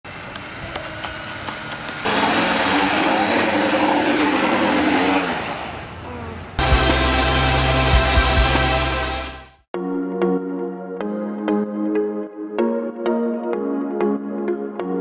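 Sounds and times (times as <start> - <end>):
drone propeller motors whirring: 0.1 - 7.4
electronic music: 6.6 - 15.0.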